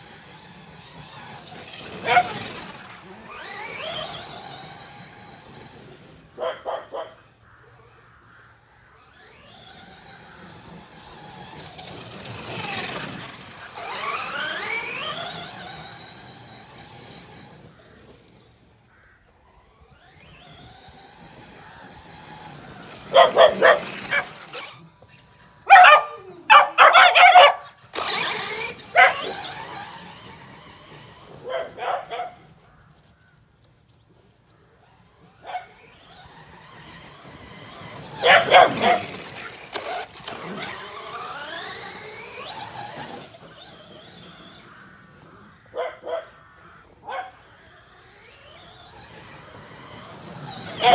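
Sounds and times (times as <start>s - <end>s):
rc car electric motor whining: 0.0s - 50.9s
dogs barking: 1.9s - 3.8s, 6.3s - 7.4s, 23.0s - 24.8s, 25.6s - 29.8s, 31.3s - 32.6s, 35.4s - 35.9s, 38.0s - 40.0s, 45.7s - 47.6s, 50.7s - 50.9s.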